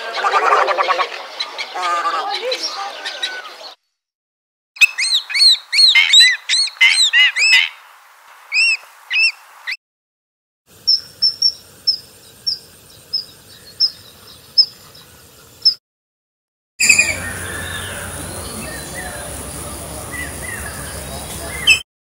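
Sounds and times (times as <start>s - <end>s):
kingfisher calls: 4.8s - 7.8s, 8.5s - 9.4s, 10.8s - 15.0s, 16.8s - 21.8s
sandpiper calling: 4.8s - 7.8s, 8.5s - 9.8s, 10.8s - 15.8s, 16.8s - 21.8s
faint hiss: 16.8s - 21.8s.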